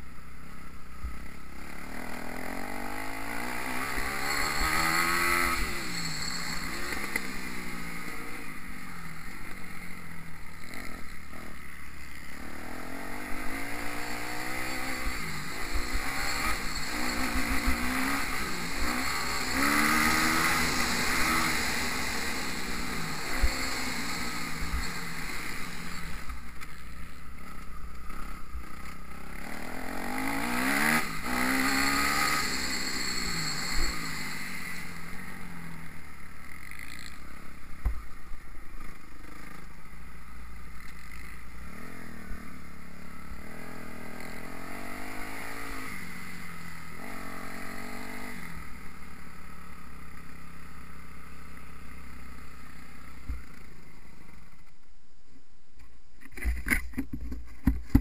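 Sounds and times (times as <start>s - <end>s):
motocross engine revving: 1.5s - 39.7s, 40.8s - 49.0s.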